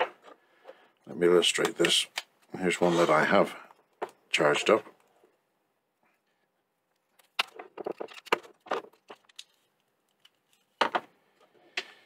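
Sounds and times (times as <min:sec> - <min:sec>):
small plastic clicks and rattles: 0:07.0 - 0:10.6.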